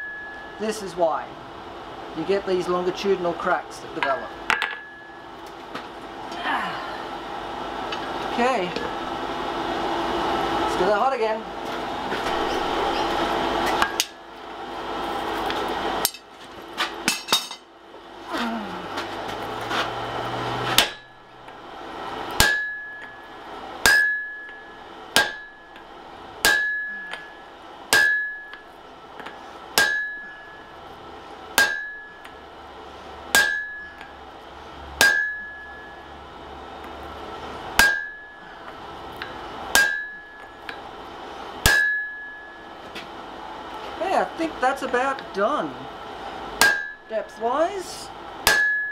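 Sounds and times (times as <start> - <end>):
hammer striking chisel on hot iron: 0.0 - 0.8, 12.2 - 14.2, 15.4 - 16.3, 17.0 - 17.7, 20.6 - 21.6, 22.2 - 32.5, 33.3 - 34.1, 35.0 - 36.1, 37.7 - 40.9, 41.6 - 43.1, 46.6 - 47.1, 48.4 - 48.9.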